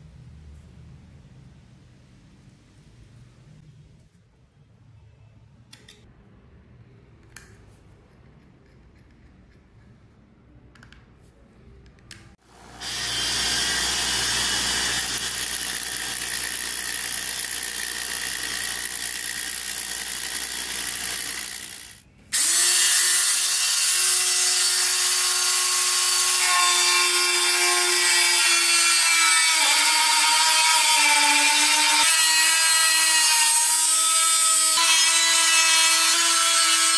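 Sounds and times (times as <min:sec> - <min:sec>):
rotary tool cutting sheet metal: 0:12.8 - 0:36.9.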